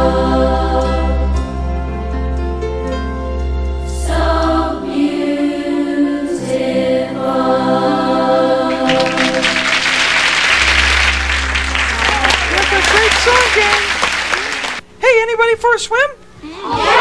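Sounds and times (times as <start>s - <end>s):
choir singing with instruments: 0.0s - 1.8s, 3.8s - 12.9s
audience applause: 8.7s - 14.8s.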